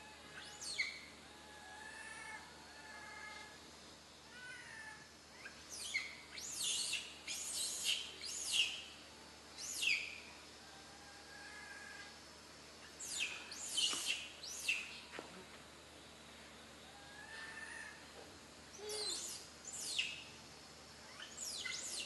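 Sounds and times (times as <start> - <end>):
faint bird chirps: 0.0 - 3.6, 4.3 - 9.0, 9.6 - 12.2, 12.8 - 15.1, 18.7 - 20.4, 21.0 - 22.0.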